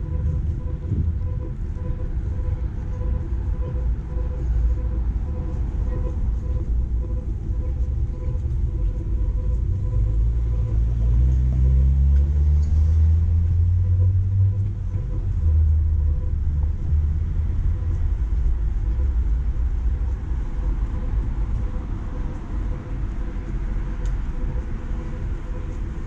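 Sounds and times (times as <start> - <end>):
street traffic rumbling: 0.0 - 26.0
vehicle engine pulling away: 10.8 - 14.6.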